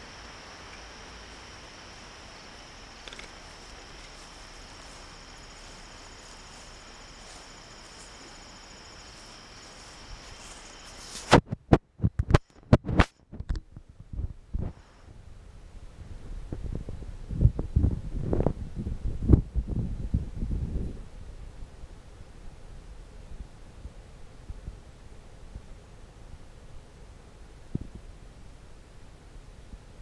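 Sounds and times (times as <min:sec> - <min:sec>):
insects trilling: 0:00.0 - 0:11.4.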